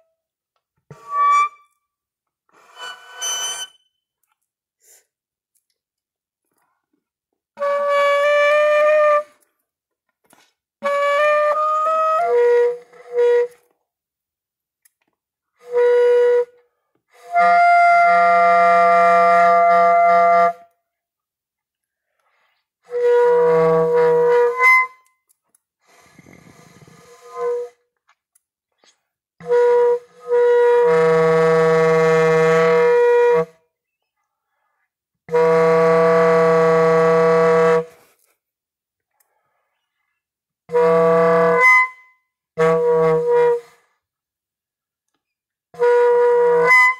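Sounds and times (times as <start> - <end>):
reedy wind instrument notes: 0.9 - 1.8, 7.6 - 9.4, 22.8 - 25.1, 26.0 - 27.8, 29.4 - 33.6, 35.3 - 38.1, 40.7 - 43.8, 45.8 - 46.9.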